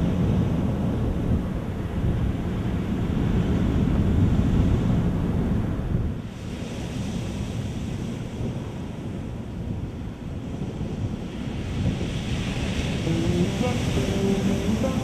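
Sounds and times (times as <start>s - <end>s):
surf washing onto beach: 11.4s - 15.0s.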